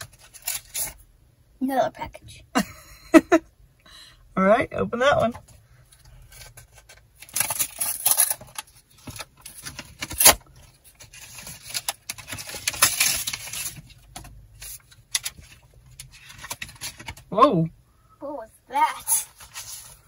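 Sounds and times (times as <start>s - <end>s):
paper crinkling: 6.4s - 17.2s, 19.0s - 20.0s.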